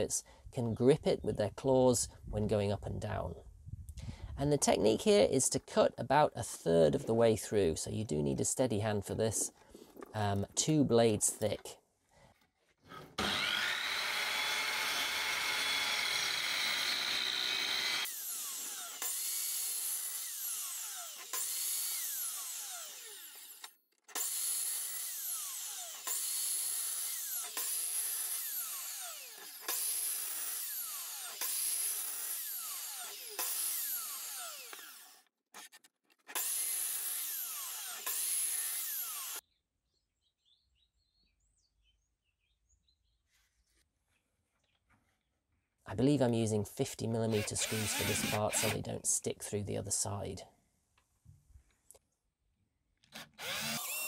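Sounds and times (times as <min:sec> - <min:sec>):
saw cutting wood: 0:12.4 - 0:39.4, 0:47.1 - 0:49.0, 0:53.1 - 0:54.0
mitre saw running: 0:12.9 - 0:39.4, 0:47.3 - 0:48.8, 0:53.2 - 0:54.0.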